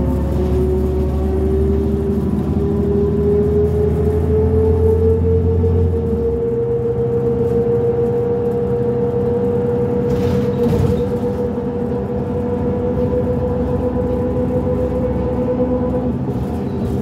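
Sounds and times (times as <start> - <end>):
bus engine rumble and whine: 0.0 - 17.0.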